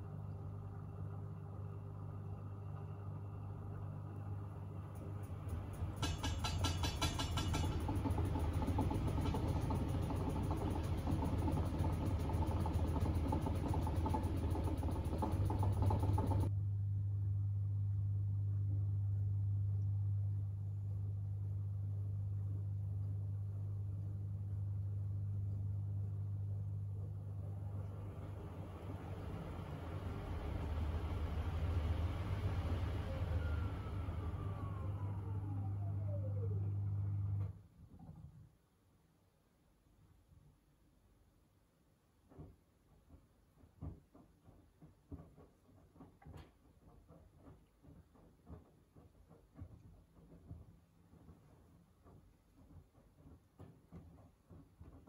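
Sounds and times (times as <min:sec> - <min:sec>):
washing machine low hum: 0:00.0 - 0:39.2
drum motor whine: 0:04.9 - 0:16.6, 0:27.1 - 0:37.5
washing machine drum turning: 0:05.0 - 0:16.5.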